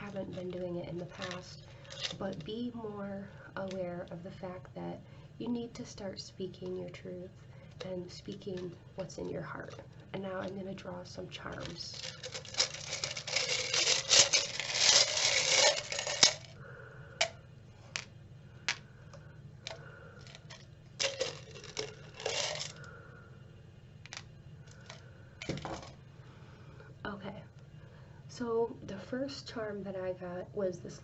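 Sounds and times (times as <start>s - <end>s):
metal charms rattling in jar: 1.2s - 2.4s, 11.8s - 16.6s, 20.2s - 22.8s.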